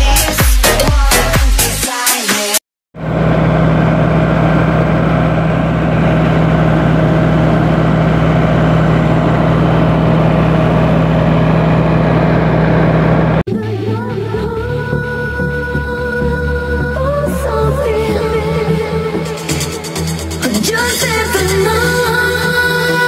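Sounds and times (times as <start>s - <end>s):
music: 0.0s - 2.6s, 13.5s - 23.0s
tractor diesel engine running: 3.0s - 13.4s.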